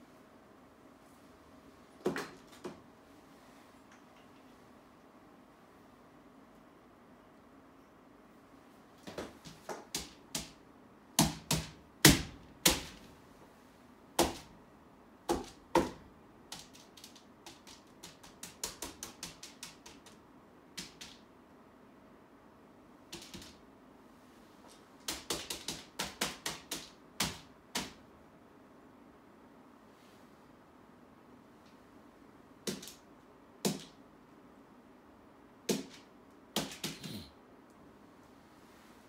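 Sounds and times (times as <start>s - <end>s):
taps and clicks on paper wall: 9.0s - 10.6s, 11.2s - 13.0s, 14.2s - 14.5s, 15.3s - 21.2s, 23.1s - 23.6s, 24.7s - 28.0s, 32.6s - 33.0s, 33.6s - 34.0s, 35.7s - 37.2s.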